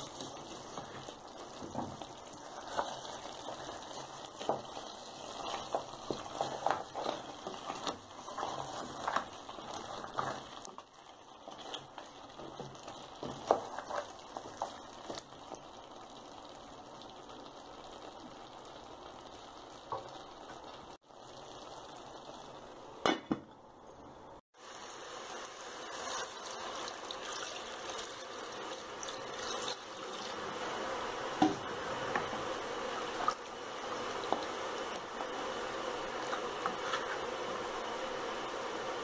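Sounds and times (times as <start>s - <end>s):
wooden spoon stirring: 0.0s - 15.6s, 31.4s - 37.4s
curry bubbling in a metal pot: 0.0s - 23.4s, 24.5s - 39.0s.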